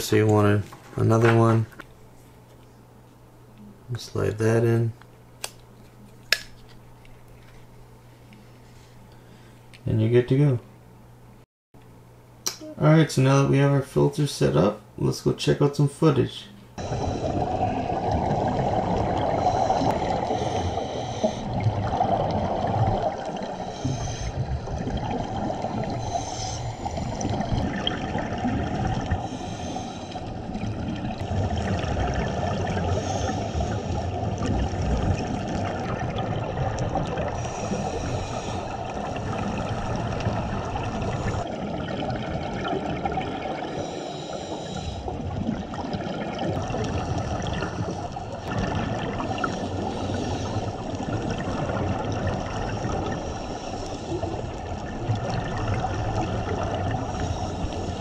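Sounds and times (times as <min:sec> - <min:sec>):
bubbling hiss: 0:16.8 - 0:58.0
muffled underwater rush of water: 0:16.8 - 0:58.0.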